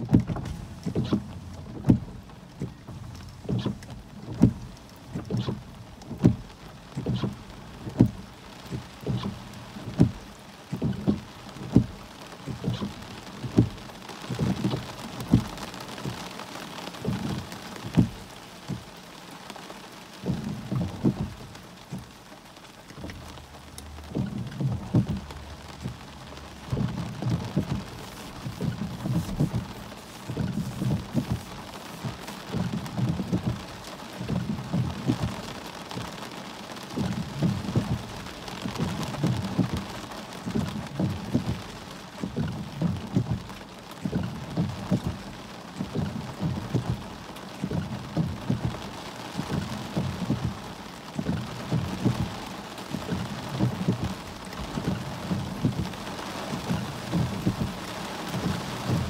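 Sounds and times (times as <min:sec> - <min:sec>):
low thumps: 0:00.0 - 0:15.5
heavy rain pouring: 0:00.0 - 0:59.0.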